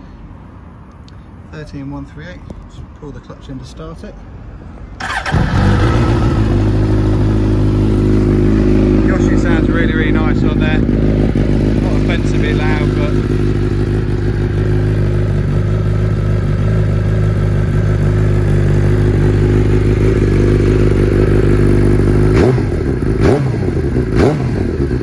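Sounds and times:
motorcycle engine idling: 0:05.0 - 0:25.0
motorcycle engine revving: 0:05.0 - 0:25.0.

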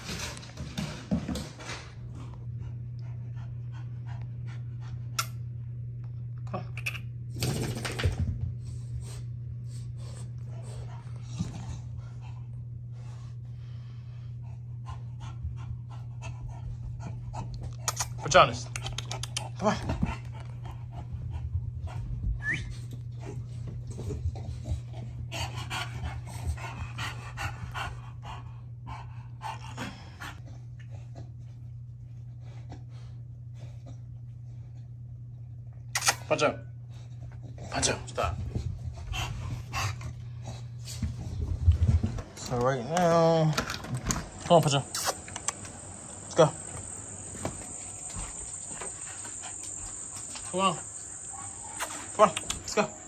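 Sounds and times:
steady low hum: 0:00.0 - 0:53.0
puppy panting: 0:01.6 - 0:05.4, 0:09.2 - 0:31.6, 0:36.9 - 0:42.6, 0:43.8 - 0:53.0.

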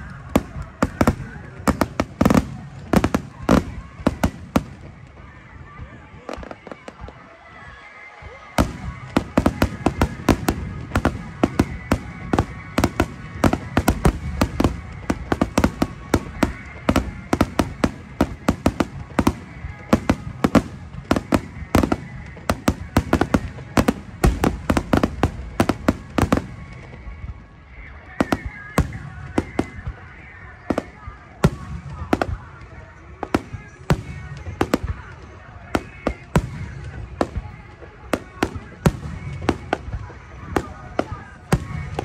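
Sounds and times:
fireworks bursting and crackling: 0:00.0 - 0:42.0.

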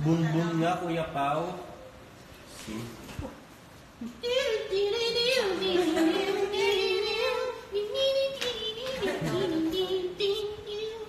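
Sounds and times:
high voice singing: 0:04.0 - 0:11.0.

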